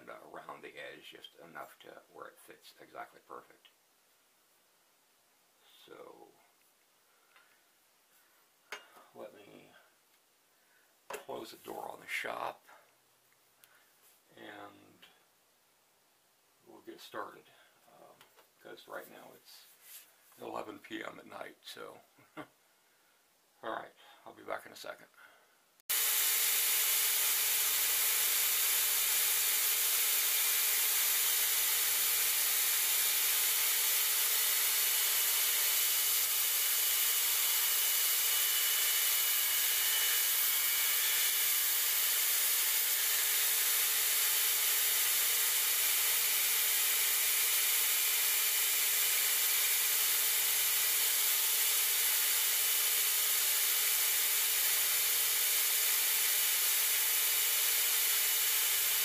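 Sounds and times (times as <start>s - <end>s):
belt grinder hissing: 25.9s - 59.0s.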